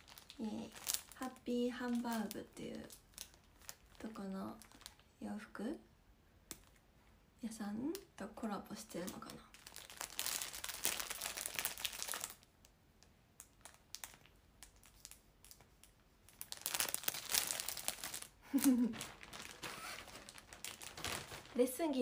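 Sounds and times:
plastic bag crinkling: 0.0 - 5.1, 9.0 - 12.5, 13.4 - 22.0.

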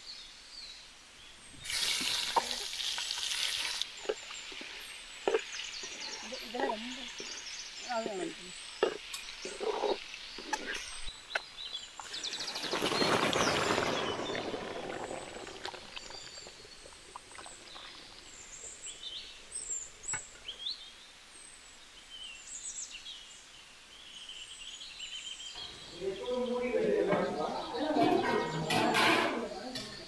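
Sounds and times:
birds chirping: 0.0 - 30.0
hot oil sizzling in a pan: 1.6 - 6.0.

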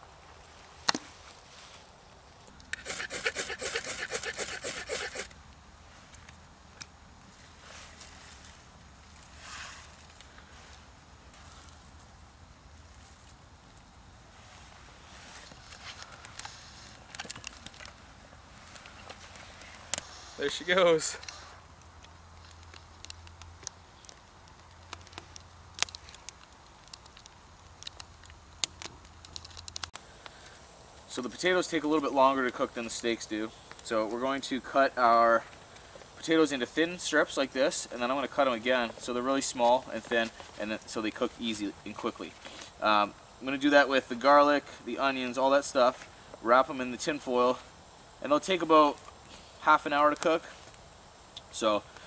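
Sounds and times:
campfire crackling: 0.0 - 52.0
rapid scraping strokes: 2.7 - 5.3.

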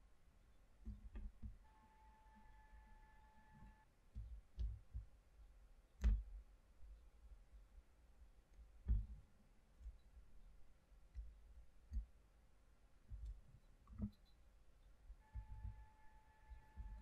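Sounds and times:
sharp wooden knocks with click: 6.0 - 6.3.

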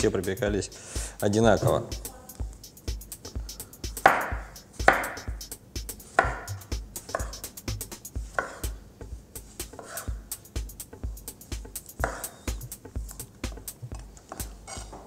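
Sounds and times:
background music with a beat: 0.0 - 14.9
knife cutting on a wooden board: 6.0 - 7.5, 8.3 - 8.8, 9.6 - 10.2, 11.8 - 13.3.

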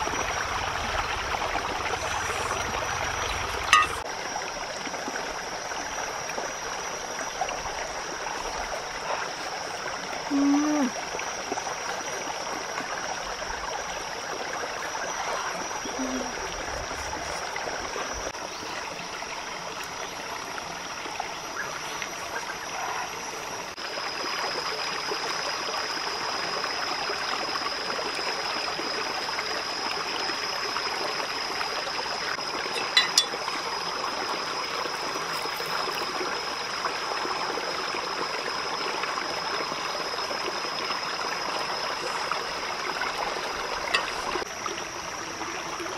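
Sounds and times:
steady high-pitched tone: 0.0 - 4.1, 29.9 - 37.2
forest stream rushing: 0.0 - 45.9.

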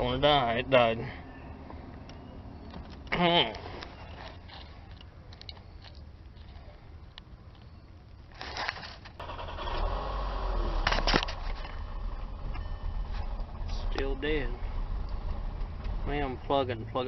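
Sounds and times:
light scraping and crackling: 2.7 - 9.2
low rumble: 9.2 - 17.0.

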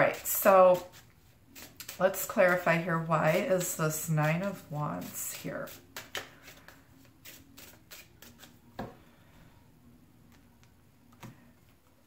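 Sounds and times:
cards being shuffled: 5.0 - 8.9.

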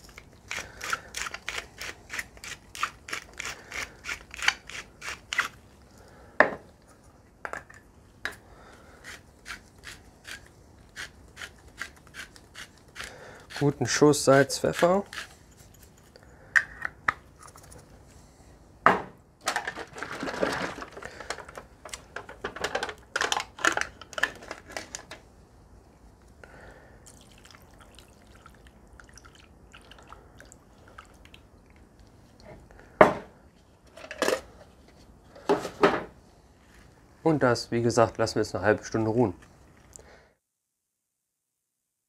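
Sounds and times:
buttermilk pouring: 27.0 - 31.5.

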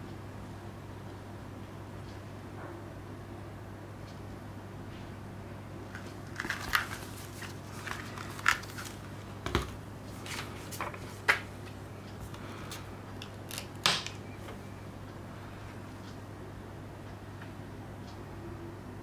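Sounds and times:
low steady hum: 0.0 - 19.0
disc case rustling and clicking: 5.9 - 11.5.

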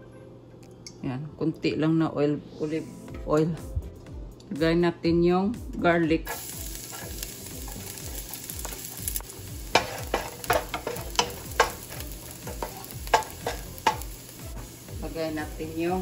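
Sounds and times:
garlic sizzling in oil: 6.3 - 16.0
wooden spoon tapping a pan: 9.7 - 14.1.

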